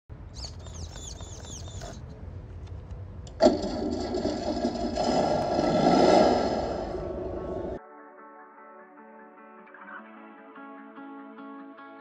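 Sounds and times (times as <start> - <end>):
bird chirping falling notes: 0.4 - 2.0.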